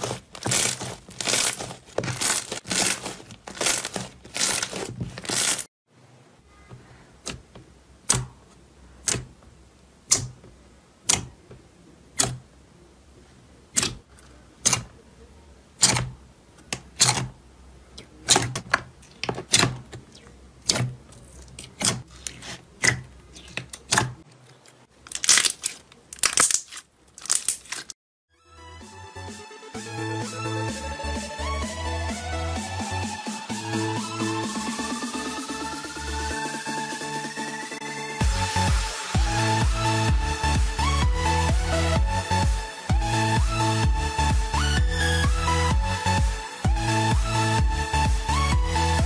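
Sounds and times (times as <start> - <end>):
slime crackling when kneaded: 0.0 - 5.7, 18.0 - 28.0
sticky slime pops and clicks: 9.0 - 9.3, 10.1 - 10.4, 12.2 - 12.4, 15.8 - 16.1
electronic music with beat: 28.6 - 49.0.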